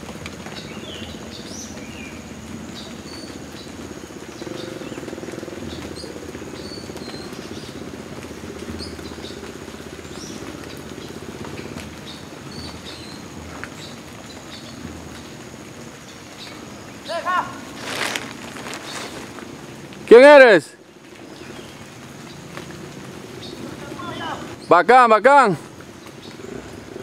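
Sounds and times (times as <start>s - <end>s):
dirt bike engine labouring: 0.0s - 20.6s.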